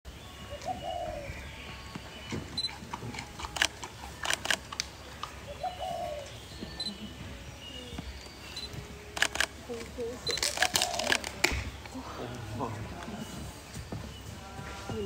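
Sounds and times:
panda crunching bamboo shoot: 0:10.3 - 0:11.6.

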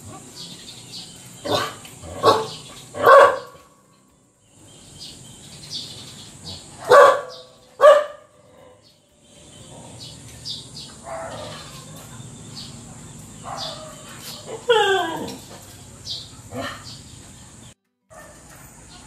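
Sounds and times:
dog barking: 0:01.5 - 0:03.6, 0:06.8 - 0:08.4, 0:11.0 - 0:11.9, 0:13.4 - 0:14.8, 0:18.1 - 0:18.6.

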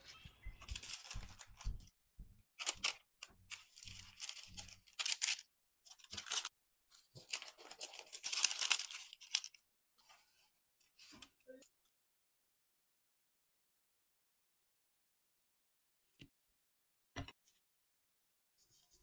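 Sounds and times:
parchment paper rustling: 0:00.0 - 0:11.4.

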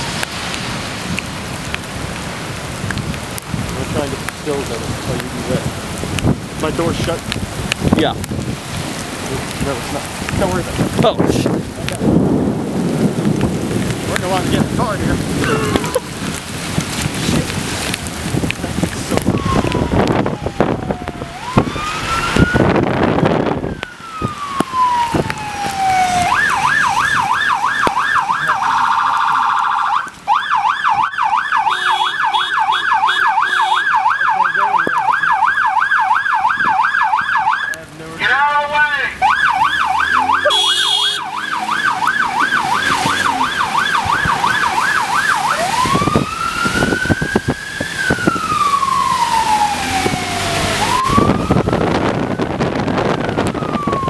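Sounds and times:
emergency siren wailing and yelping: 0:15.2 - 0:16.6, 0:19.0 - 0:54.0.

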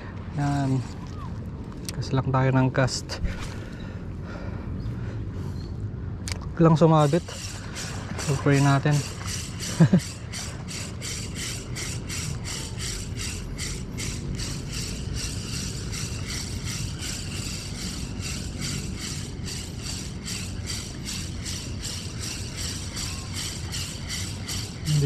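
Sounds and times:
wind and sea rumble: 0:00.0 - 0:25.0
fishing reel rattling tick: 0:07.0 - 0:25.0.

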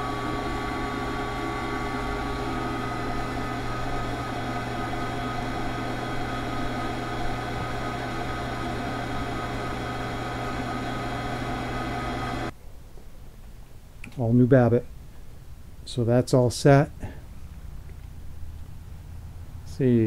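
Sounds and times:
metal lathe humming: 0:00.0 - 0:12.5.

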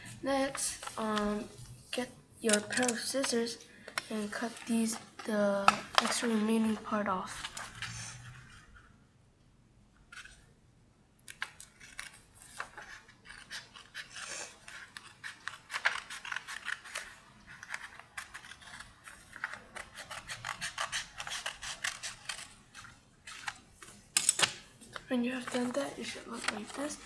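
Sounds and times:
scissors snipping paper: 0:02.4 - 0:03.4, 0:04.0 - 0:07.6, 0:11.3 - 0:23.6, 0:24.3 - 0:27.0.

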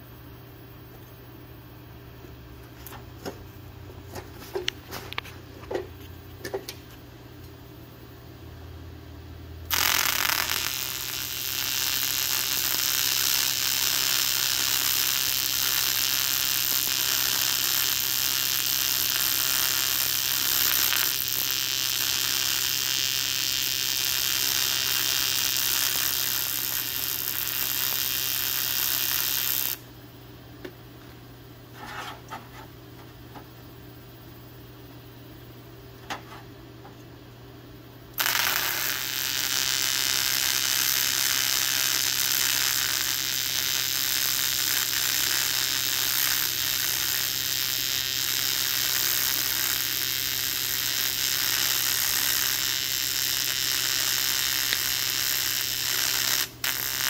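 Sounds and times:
welding arc buzzing hiss: 0:00.0 - 0:01.4, 0:09.6 - 0:30.0, 0:38.1 - 0:57.0.

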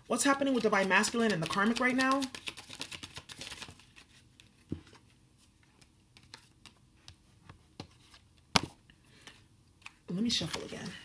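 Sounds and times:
cards clicking and tapping: 0:00.6 - 0:03.8, 0:05.8 - 0:08.0.

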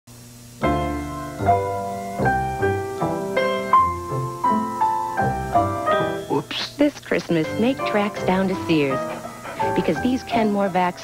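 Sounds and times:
slow piano chords with melody: 0:00.6 - 0:06.6.

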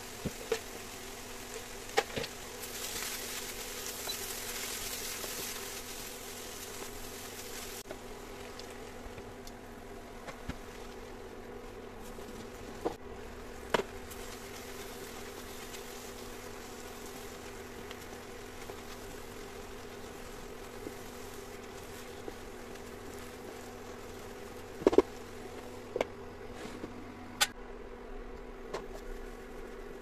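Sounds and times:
food sizzling in a pan: 0:00.0 - 0:08.4, 0:13.4 - 0:25.8
induction cooktop humming: 0:00.0 - 0:30.0.

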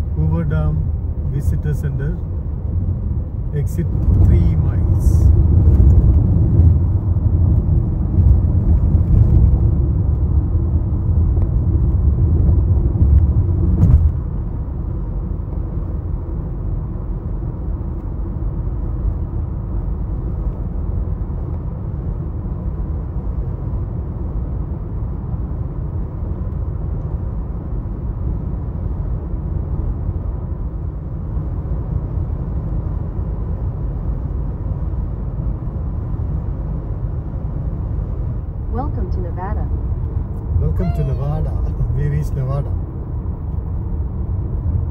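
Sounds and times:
car interior road rumble: 0:00.0 - 0:44.9.

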